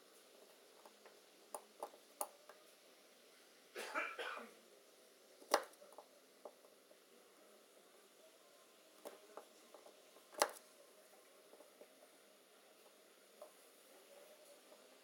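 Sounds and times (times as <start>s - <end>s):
person coughing: 3.8s - 4.6s.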